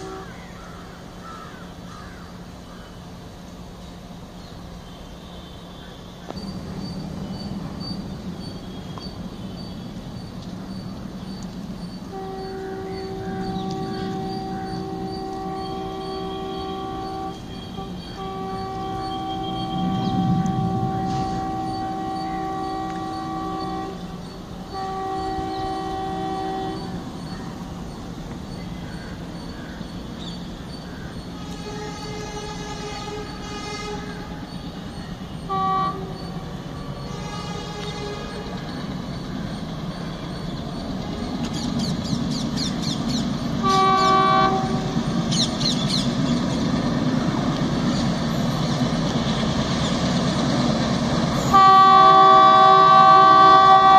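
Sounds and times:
locomotive horn blasts: 0.0 - 0.5, 4.8 - 6.6, 12.0 - 27.9, 31.3 - 46.0, 50.3 - 53.9
diesel train engine drone: 0.0 - 53.9
low rumble: 19.6 - 22.2.

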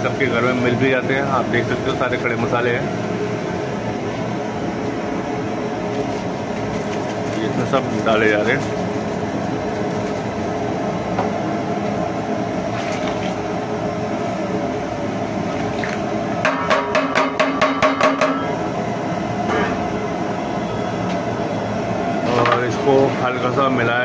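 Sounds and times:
steady hum: 0.0 - 24.0
steel bowl knocking on metal pot: 16.4 - 18.4.

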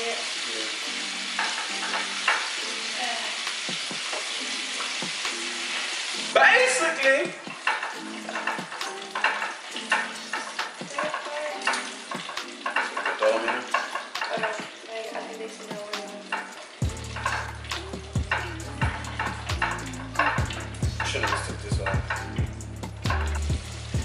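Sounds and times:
food sizzling in hot oil: 0.0 - 24.0
metal tongs clinking dishes: 1.4 - 2.6, 7.6 - 15.4, 16.2 - 17.6, 18.2 - 23.5.

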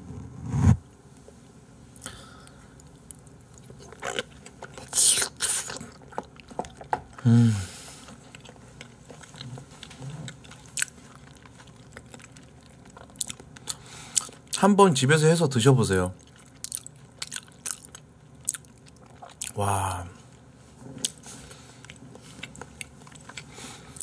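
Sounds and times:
man chewing food: 2.0 - 14.6, 16.2 - 24.0
man humming: 7.2 - 7.7, 19.6 - 20.2.

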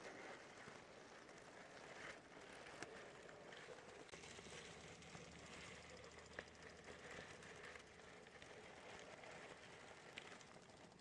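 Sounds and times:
faint outdoor hiss: 0.0 - 11.0
soft ticks: 5.0 - 11.0.

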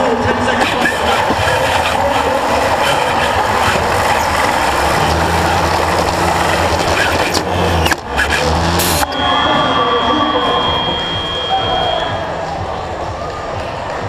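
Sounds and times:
robot mechanical noise and rattle: 0.6 - 9.1.

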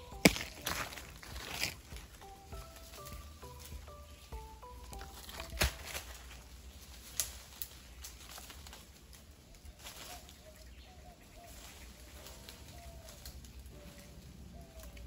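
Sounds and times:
short music tune: 0.0 - 6.1
tree branches snapping: 0.0 - 10.4, 11.6 - 15.0
faint bird calls: 9.6 - 15.0.

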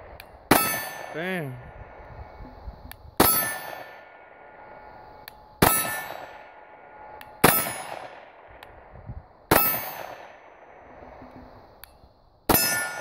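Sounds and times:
pistol shots: 0.5 - 1.2, 5.6 - 6.6, 7.4 - 8.4, 9.5 - 10.6
steel target ringing clang: 0.5 - 1.2, 3.2 - 4.1, 5.6 - 6.7, 7.4 - 8.1, 12.5 - 13.0.

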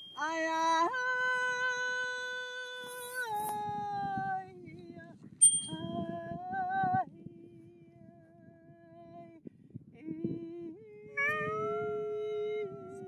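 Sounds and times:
thin high whistling tone: 0.0 - 0.9, 2.8 - 3.6, 5.4 - 6.0.

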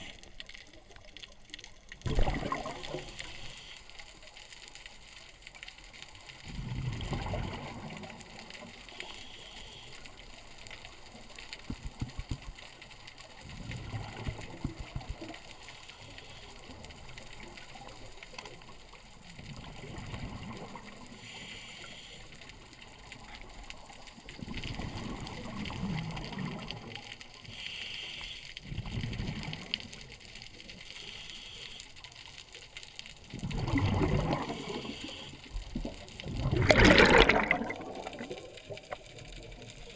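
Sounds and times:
exhaled bubbles underwater: 0.0 - 3.6, 6.4 - 8.8, 13.4 - 15.4, 19.2 - 21.1, 24.3 - 27.1, 28.6 - 30.0, 33.2 - 39.9
regulator hiss: 9.0 - 10.6, 21.2 - 22.4, 27.5 - 28.6, 30.9 - 32.0, 34.6 - 35.6.

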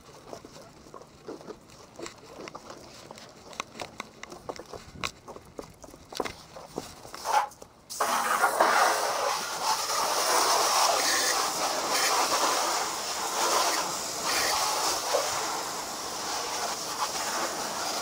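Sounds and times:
hose spraying water on car: 7.2 - 18.0.

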